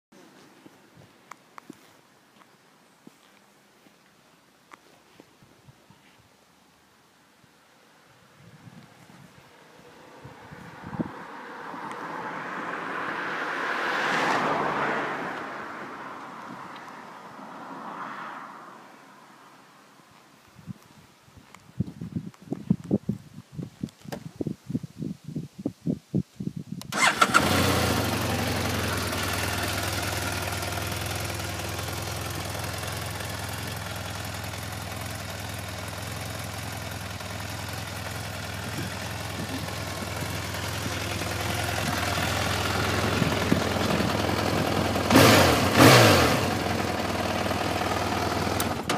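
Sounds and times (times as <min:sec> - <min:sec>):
motorcycle engine starting and idling: 0:26.9 - 0:48.9
engine throttle blips: 0:27.0 - 0:48.9.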